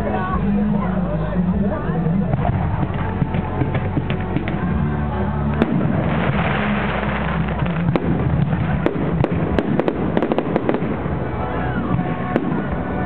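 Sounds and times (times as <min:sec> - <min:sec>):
music: 0:00.0 - 0:13.0
fireworks bangs: 0:02.3 - 0:13.0
firework hiss and crackle: 0:05.6 - 0:11.2.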